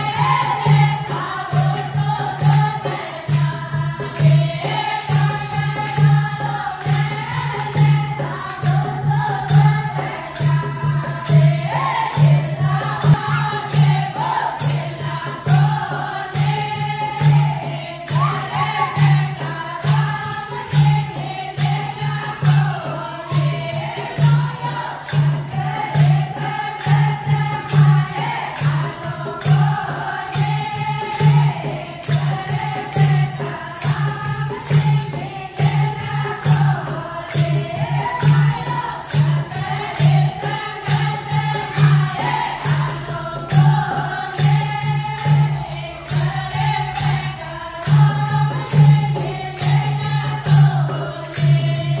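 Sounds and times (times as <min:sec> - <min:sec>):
steady percussion: 0:00.0 - 0:52.0
women singing devotional song: 0:00.0 - 0:52.0.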